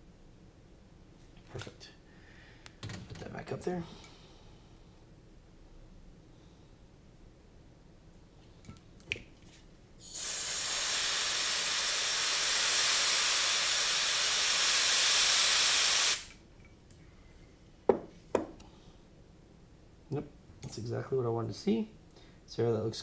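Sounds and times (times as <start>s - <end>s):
spray can hissing: 10.0s - 16.4s.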